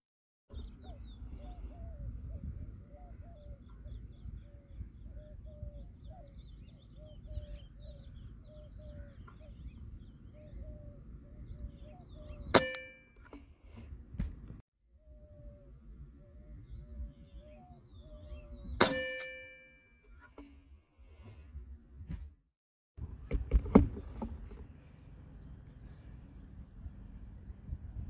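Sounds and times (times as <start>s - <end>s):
short chirping bird calls: 15.0s - 19.4s.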